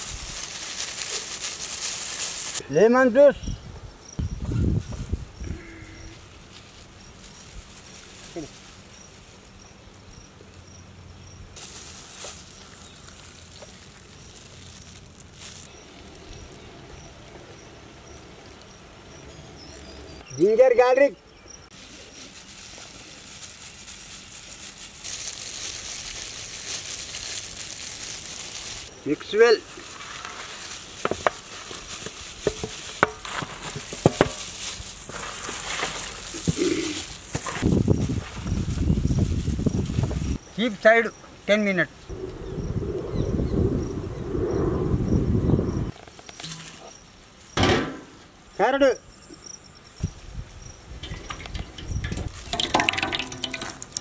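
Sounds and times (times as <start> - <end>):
insect chirping: 3.3 - 20.5, 36.1 - 54.0.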